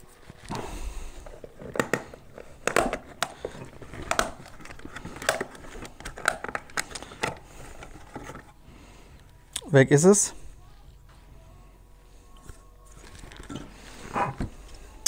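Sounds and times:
plastic clicks and rattles: 1.5s - 8.5s.

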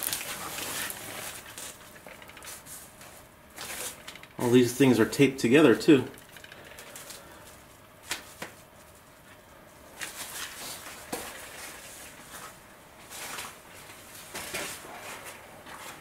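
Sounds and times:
rustles and scrapes: 0.0s - 4.2s, 10.0s - 16.0s.

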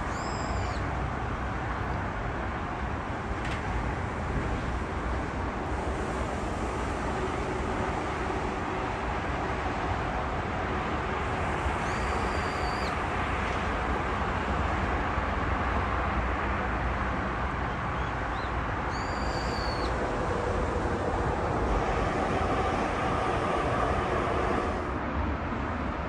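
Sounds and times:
distant expressway traffic: 0.0s - 26.0s
high held whistle: 11.8s - 12.9s, 18.9s - 19.9s.

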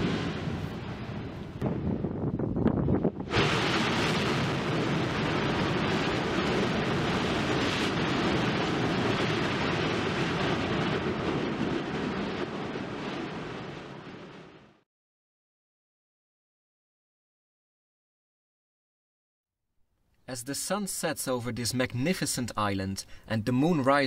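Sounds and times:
lava vents rushing roar: 0.0s - 14.8s.

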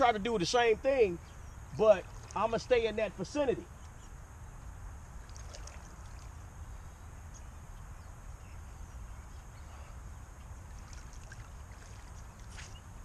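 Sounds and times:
water lapping and trickling: 1.5s - 2.6s, 5.2s - 6.6s, 9.8s - 13.0s.

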